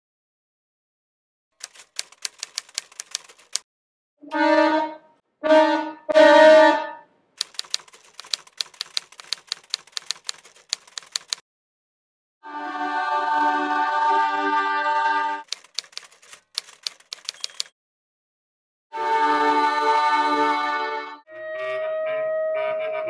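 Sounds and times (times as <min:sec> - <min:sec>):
typewriter keys clacking: 0:01.6 - 0:03.6, 0:07.4 - 0:11.4, 0:15.4 - 0:17.7
short horn-like notes: 0:04.2 - 0:07.1.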